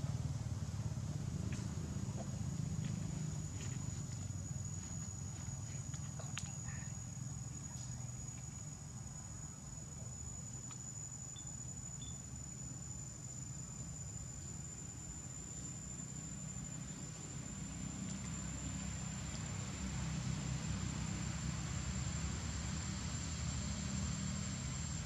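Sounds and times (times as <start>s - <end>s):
high-pitched insect trill: 2.1s - 25.0s
faint clicks: 5.9s - 6.7s.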